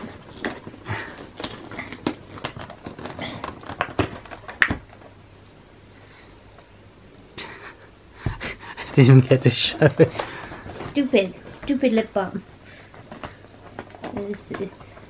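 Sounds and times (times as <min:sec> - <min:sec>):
cardboard snap: 0:03.7 - 0:05.0.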